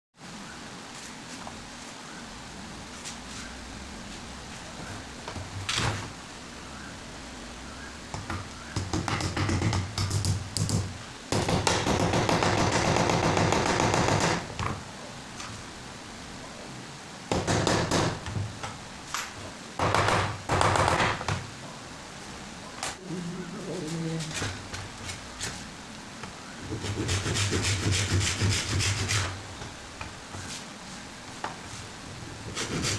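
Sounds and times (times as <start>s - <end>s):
dense steady noise: 0.2s - 32.9s
hand tools tapping wood: 8.1s - 14.8s.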